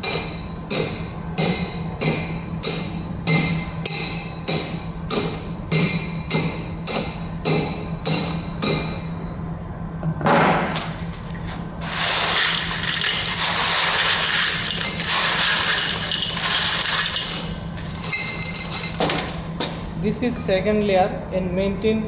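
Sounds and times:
stones poured into steel mould: 11.8 - 17.1.

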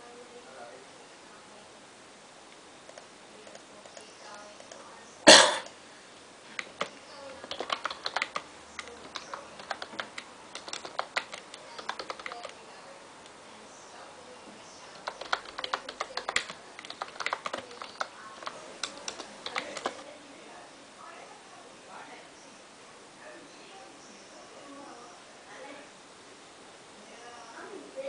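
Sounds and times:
computer keyboard typing: 2.9 - 4.9, 6.5 - 12.7, 14.8 - 20.0.

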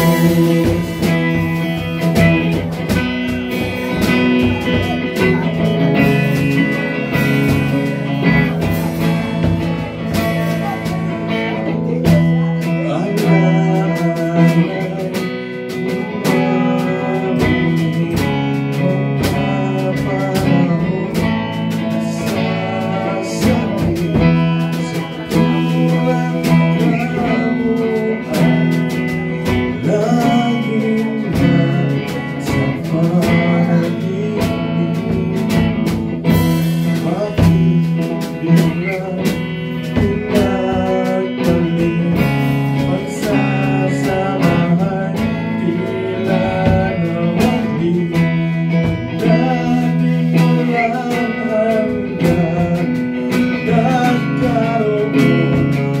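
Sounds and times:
electric guitar: 0.0 - 56.0
live band playing pop-rock ballad: 0.0 - 56.0.

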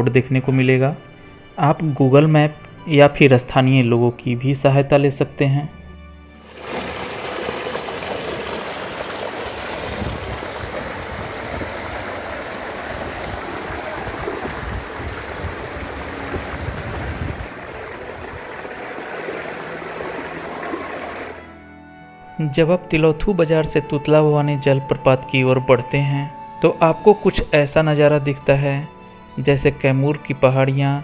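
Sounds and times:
water rushing over rocks: 6.4 - 21.5
low water rumble: 6.4 - 21.6.

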